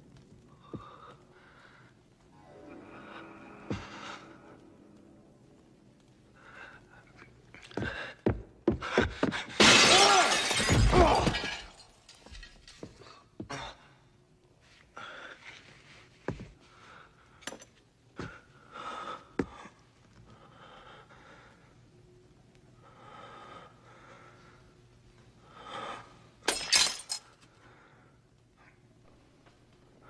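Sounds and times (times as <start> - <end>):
glass shattering: 9.6 - 12.9, 26.5 - 27.3.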